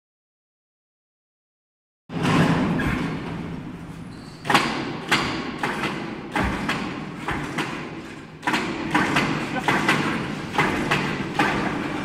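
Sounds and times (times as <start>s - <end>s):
knocks and thuds on machine gantry: 2.1s - 3.6s, 4.4s - 12.0s
noisy workshop background: 2.1s - 12.0s.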